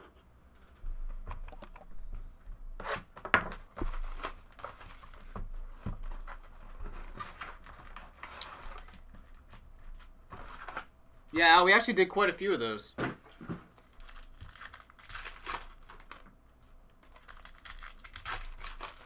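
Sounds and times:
shrink-wrap tearing and crinkling: 3.9s - 5.3s, 13.7s - 19.0s
foil packs scraping and rustling: 17.0s - 19.0s.

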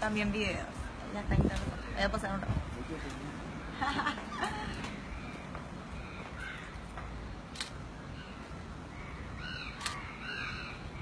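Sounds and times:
crows cawing: 4.5s - 7.0s
sharp clicks: 7.5s - 7.8s, 9.7s - 10.1s.

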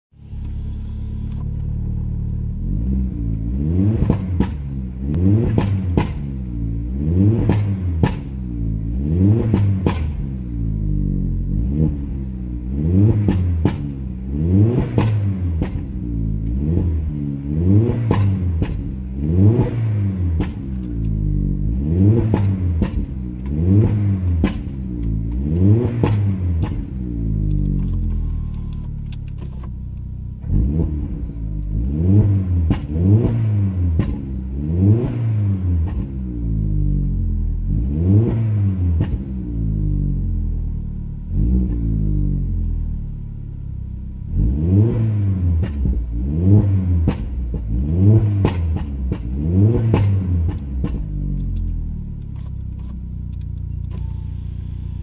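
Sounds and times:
car engine revving: 0.2s - 55.0s
exhaust pops and bangs: 4.0s - 4.7s, 5.4s - 6.4s, 7.4s - 8.4s, 9.4s - 10.3s, 13.2s - 14.0s, 14.8s - 16.0s, 17.9s - 19.0s, 19.6s - 21.0s, 22.2s - 23.2s, 23.8s - 24.8s, 25.9s - 27.0s, 32.6s - 34.3s, 46.9s - 51.3s.

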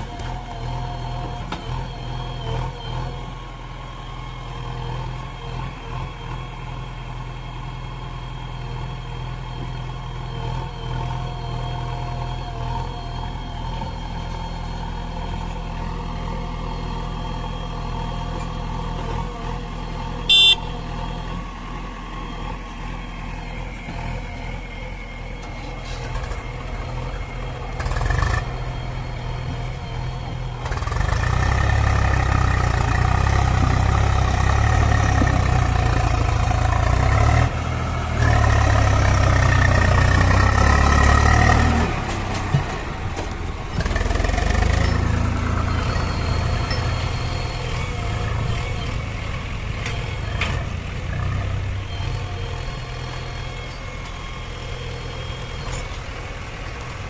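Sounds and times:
diesel engines running: 0.0s - 57.0s
engine revving: 10.4s - 23.3s, 26.1s - 57.0s
short high-pitched beep: 20.3s - 20.8s.

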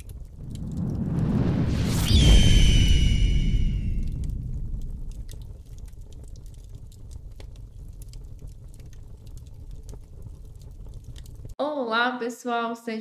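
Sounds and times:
low rumble: 0.0s - 10.1s
irregular crackles: 0.0s - 11.6s.

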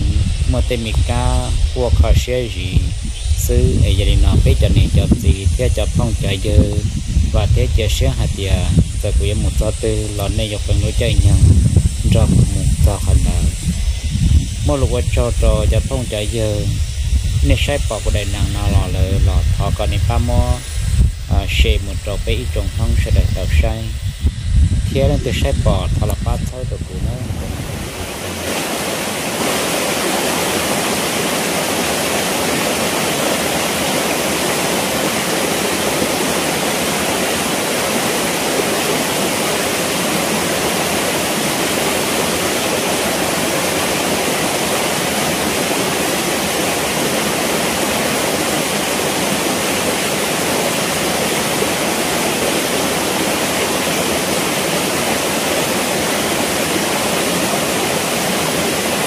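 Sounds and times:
stream running over rocks: 0.0s - 24.1s, 25.0s - 59.0s.

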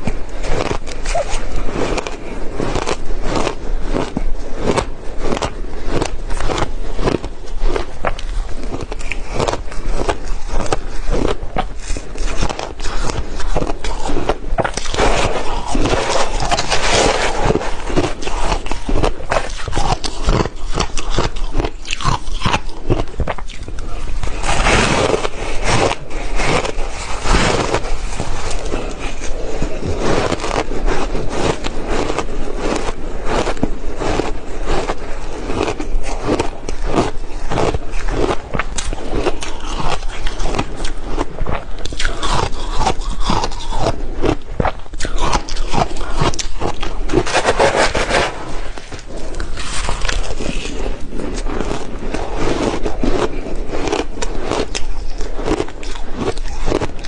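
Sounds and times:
chewing crushed ice: 0.0s - 57.0s
metal spoon scraping crushed ice: 45.1s - 51.8s.

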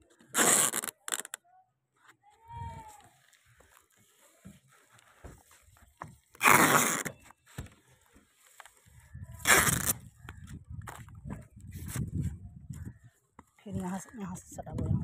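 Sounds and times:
tape ripping off roll: 0.2s - 1.4s, 6.3s - 7.7s, 9.4s - 10.1s
soft knocks and rubs on plywood: 3.6s - 6.2s.

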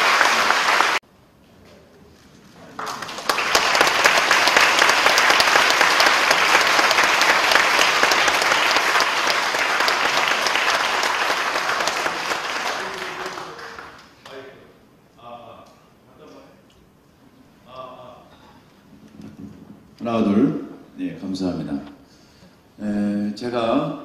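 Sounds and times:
congregation applauding: 0.0s - 1.0s, 2.7s - 14.5s.

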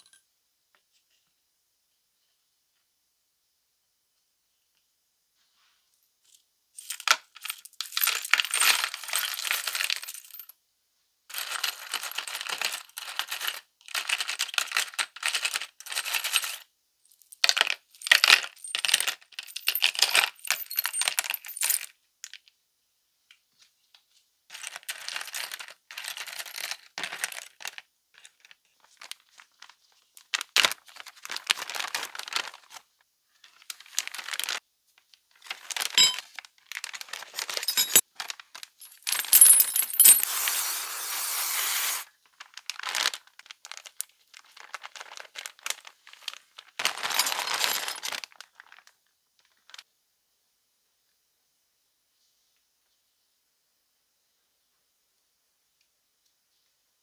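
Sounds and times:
small metal parts clattering: 6.8s - 10.5s, 17.2s - 21.9s, 24.5s - 29.2s, 35.4s - 42.0s, 44.6s - 48.8s.

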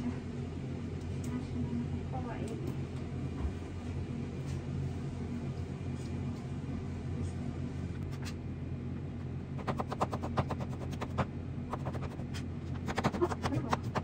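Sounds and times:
knife chopping on cutting board: 9.6s - 14.0s.

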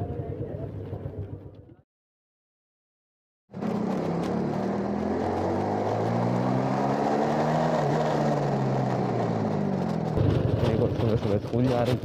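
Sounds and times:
road and wind noise: 3.5s - 12.0s.

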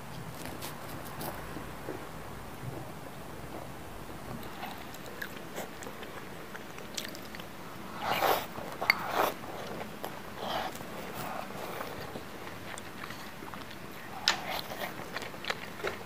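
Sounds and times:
soft chewing clicks: 4.3s - 16.0s
slurping soup: 7.9s - 9.7s.

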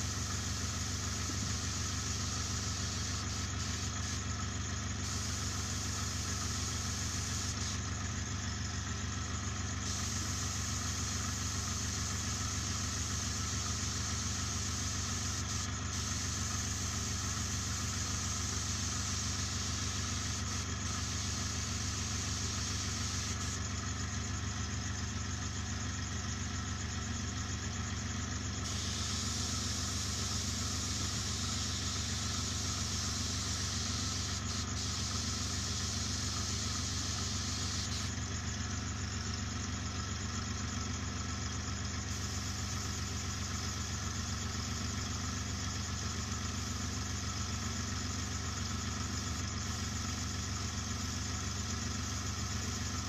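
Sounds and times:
airbrush air hiss: 0.0s - 4.3s, 4.9s - 7.8s, 9.8s - 23.6s, 28.6s - 38.1s, 42.1s - 42.9s
air compressor humming: 0.0s - 41.0s, 41.7s - 47.9s.

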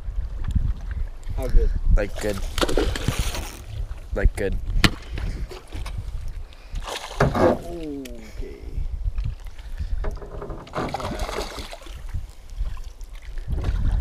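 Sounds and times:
wind on microphone: 0.0s - 14.0s
fish splashing in water: 10.7s - 12.1s.

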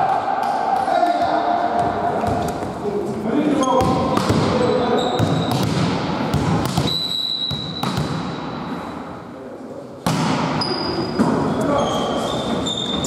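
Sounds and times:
hands slapping volleyball: 5.2s - 8.3s
high whistle-like tone: 6.9s - 7.8s.

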